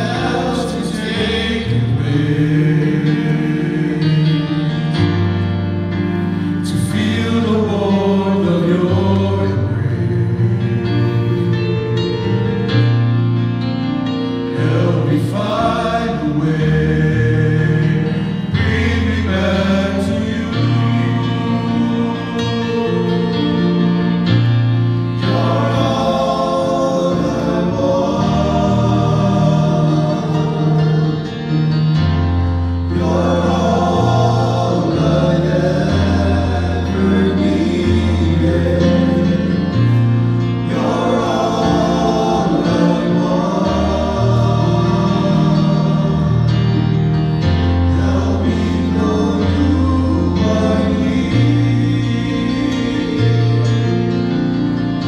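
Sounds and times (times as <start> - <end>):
men singing in harmony: 0.0 - 12.8, 14.4 - 55.0.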